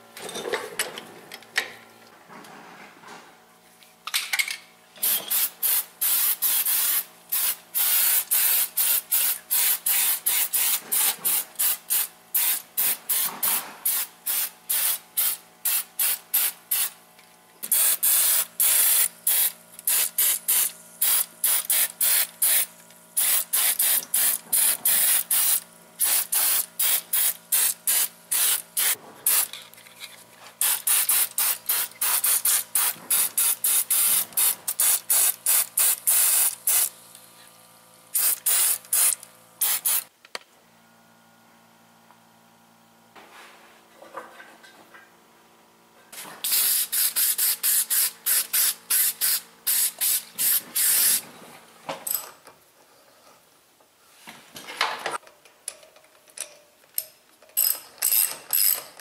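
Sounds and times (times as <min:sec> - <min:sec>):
aerosol spray hissing: 0:38.2 - 0:40.1, 0:46.4 - 0:51.2.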